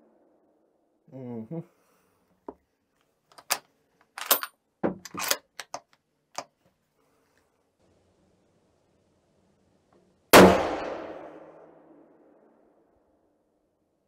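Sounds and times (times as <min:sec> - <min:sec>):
rifle bolt metallic clicks: 0:03.3 - 0:03.6, 0:04.2 - 0:06.5.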